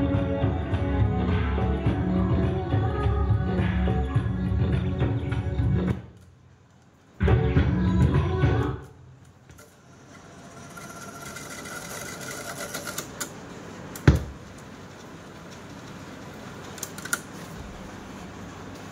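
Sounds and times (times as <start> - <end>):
cassette deck whirring: 5.2 - 18.9.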